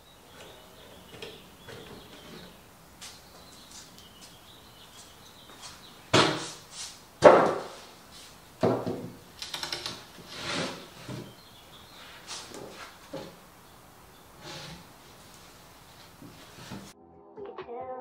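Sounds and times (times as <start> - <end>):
wooden bumps knocks and scrapes: 0.3 - 3.9, 5.4 - 6.6, 7.2 - 8.0, 8.6 - 9.2, 9.9 - 13.4, 14.4 - 15.0, 16.0 - 16.9.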